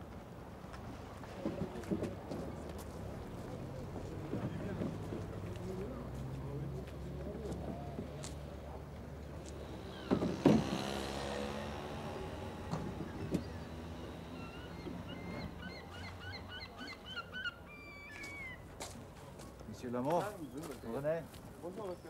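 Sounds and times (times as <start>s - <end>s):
vehicle engine passing: 3.0s - 16.6s.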